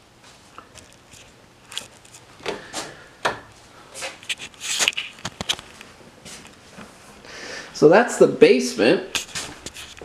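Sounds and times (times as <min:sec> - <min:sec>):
handling knocks rubs and clicks: 0:00.6 - 0:06.9, 0:09.1 - 0:10.0.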